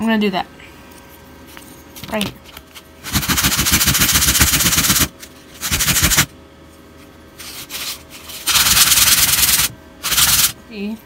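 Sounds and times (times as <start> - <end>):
wood rubbed on sandpaper: 7.4 - 10.6.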